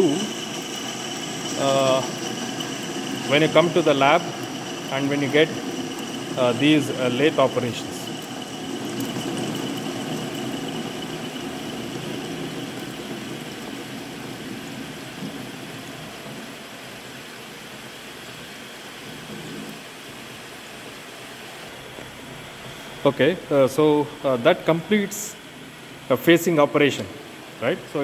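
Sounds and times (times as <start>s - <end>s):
lathe humming: 0.0s - 16.1s
faint high whine: 0.0s - 16.2s.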